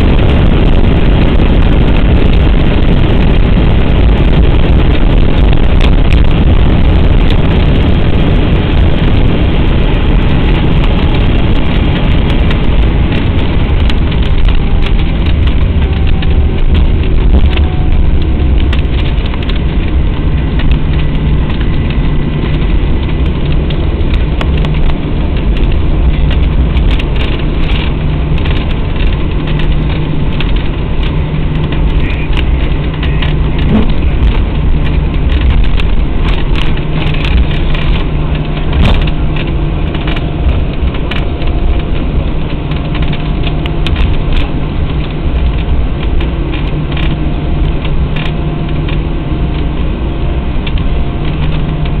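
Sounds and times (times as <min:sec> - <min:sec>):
jet engine hum: 0:00.0 - 0:52.0
second steady hum tone: 0:00.0 - 0:52.0
wheels rumbling on pavement: 0:00.0 - 0:52.0
knocks and rattles: 0:10.5 - 0:49.9.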